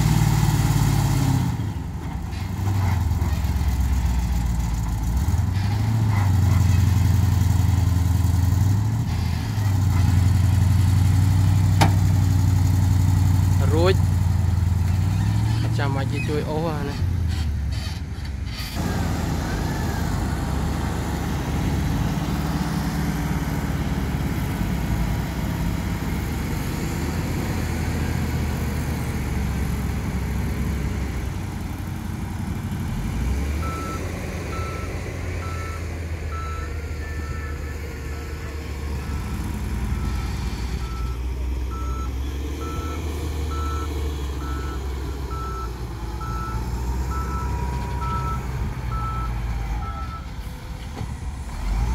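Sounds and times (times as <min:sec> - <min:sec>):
diesel engine running: 0:00.0 - 0:51.9
reversing alarm beeping: 0:33.6 - 0:50.3.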